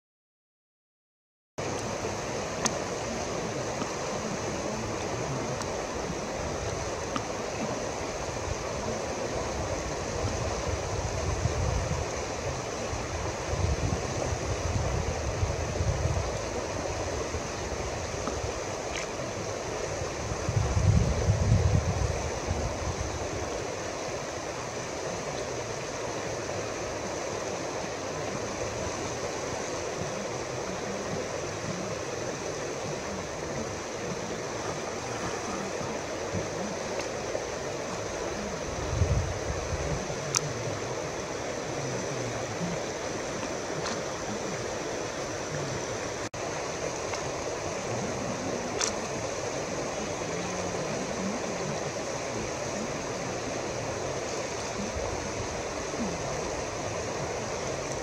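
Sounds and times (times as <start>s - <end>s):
river water rushing: 1.6s - 58.0s
wind rumble on microphone: 1.8s - 24.0s, 28.2s - 41.0s
faint clicks: 48.8s - 49.0s.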